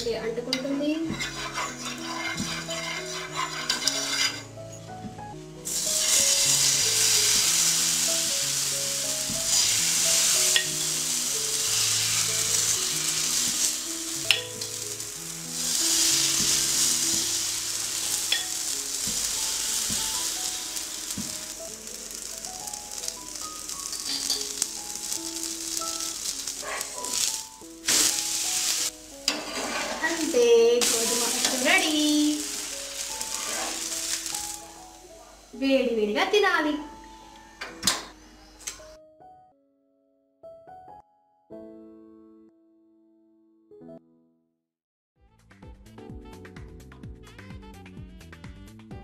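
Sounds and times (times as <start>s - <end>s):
batter sizzling on hot pan: 0.6s - 4.5s, 5.6s - 36.3s.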